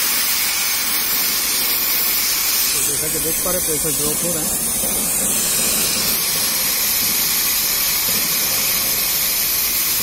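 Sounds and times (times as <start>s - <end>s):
gas hissing from a valve: 0.0s - 10.0s.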